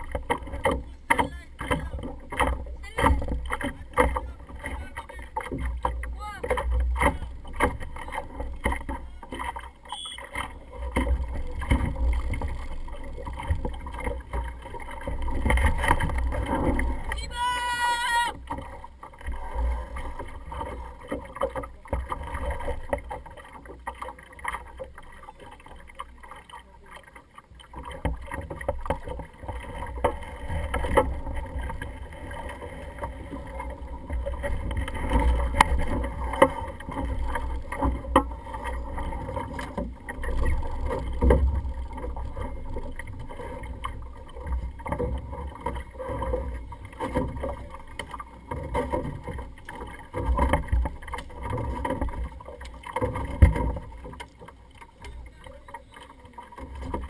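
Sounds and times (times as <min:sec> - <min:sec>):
knocks from hull and rigging: 0:00.0 - 0:17.4, 0:27.3 - 0:57.0
water washing against hull: 0:00.0 - 0:57.0.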